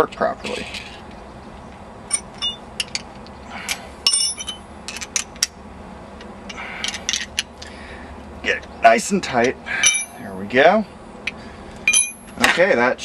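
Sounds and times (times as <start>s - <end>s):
small steel parts clinking: 2.1s - 5.6s, 6.2s - 7.7s, 9.4s - 10.2s, 11.8s - 12.5s.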